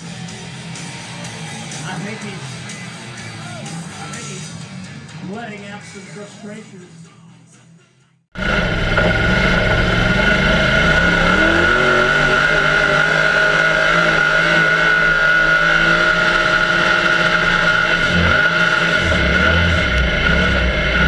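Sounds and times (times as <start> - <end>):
high whine: 8.4 - 21.0
truck engine running at high revs: 8.4 - 21.0.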